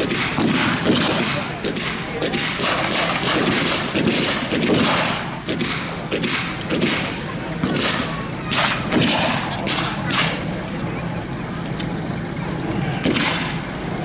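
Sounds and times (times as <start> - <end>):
rifle shots with echo: 0.0 - 10.5, 13.0 - 13.6.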